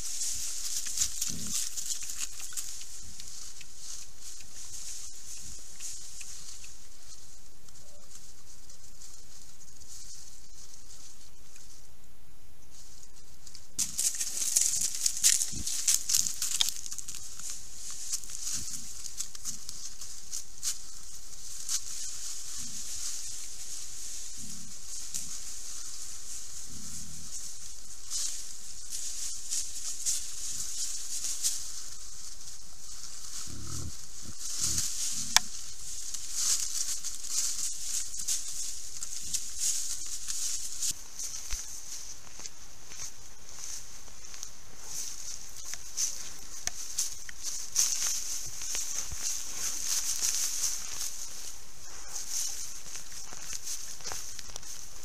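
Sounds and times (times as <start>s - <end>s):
animals rustling in dry leaves: 0.0s - 55.0s
steady high hiss: 0.0s - 55.0s
wild boar grunting: 33.4s - 35.4s.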